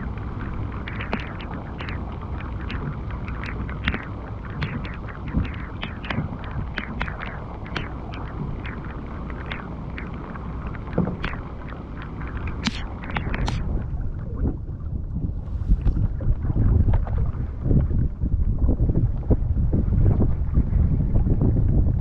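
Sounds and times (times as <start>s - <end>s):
wind rumble on microphone: 0.0s - 22.0s
rain drops hitting: 0.1s - 13.6s.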